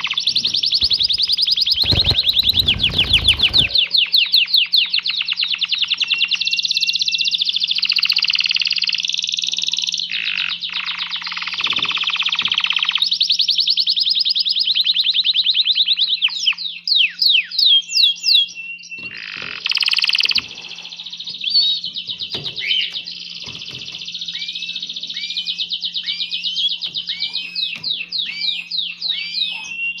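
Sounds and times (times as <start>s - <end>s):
canary singing trills: 14.7s - 30.0s.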